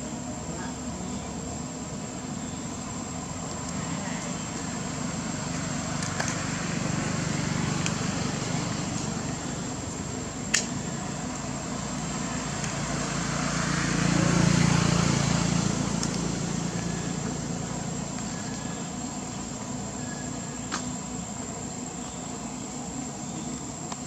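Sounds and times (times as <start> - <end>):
high insect drone: 0.0 - 24.0
vehicle engine passing by: 4.9 - 9.8, 11.5 - 18.8
sharp click: 10.5 - 10.8, 20.7 - 20.9.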